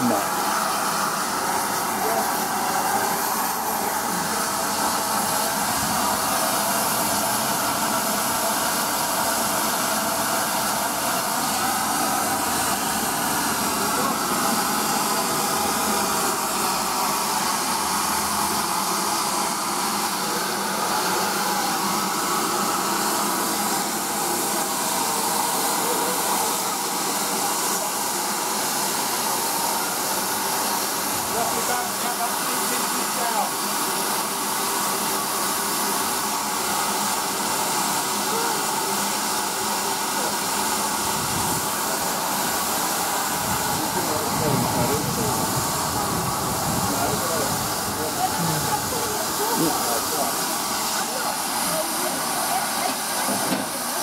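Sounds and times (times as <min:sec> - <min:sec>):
steam hissing from locomotive: 0:00.0 - 0:54.0.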